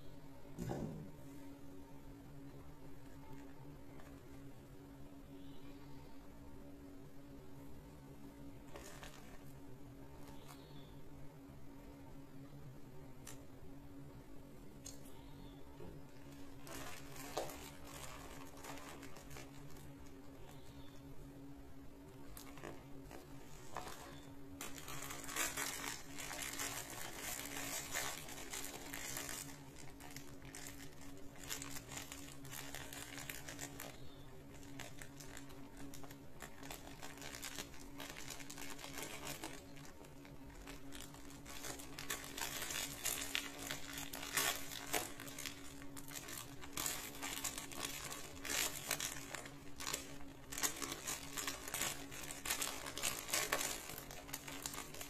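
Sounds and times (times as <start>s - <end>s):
faint low hum: 0.0s - 55.0s
plastic bag crinkling: 8.6s - 9.6s, 16.1s - 21.1s, 22.0s - 55.0s.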